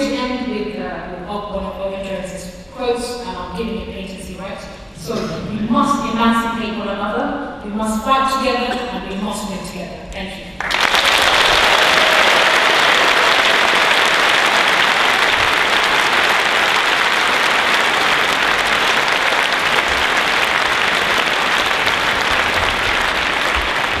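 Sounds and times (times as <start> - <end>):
audience applauding: 10.6 - 24.0.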